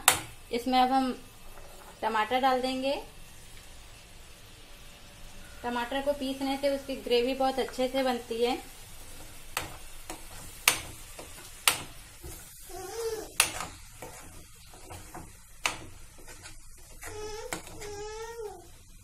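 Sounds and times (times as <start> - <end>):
faint sizzle: 0.0 - 19.0
metal spoon scraping a pan: 8.9 - 18.0.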